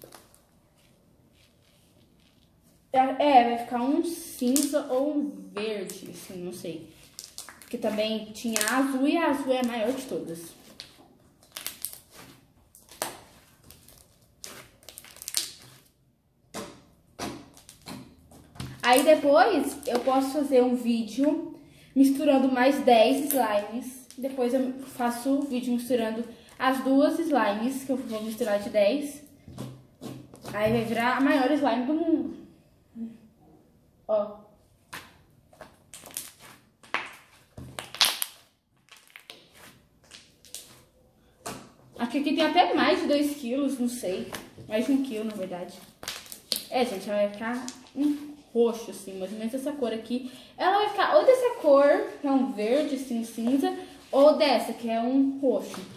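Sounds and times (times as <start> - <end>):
slime squelching and popping: 6.9 - 20.4, 34.9 - 41.8, 44.2 - 48.4.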